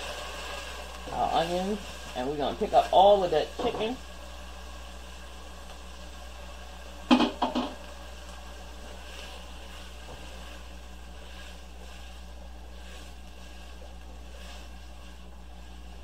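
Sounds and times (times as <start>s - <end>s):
steady low hum: 0.0s - 16.0s
vegetables sizzling in butter: 0.0s - 16.0s
spatula scraping pot: 8.8s - 16.0s.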